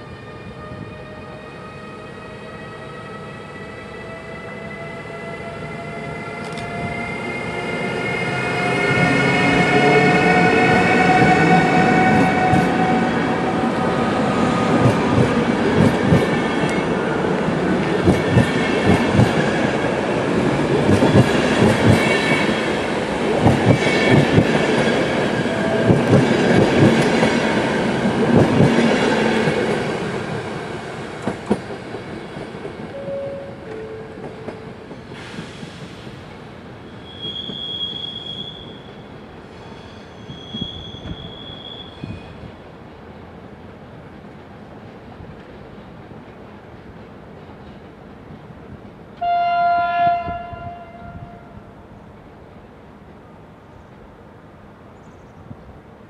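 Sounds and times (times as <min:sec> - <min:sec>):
train wheels clattering: 0:23.4 - 0:29.9.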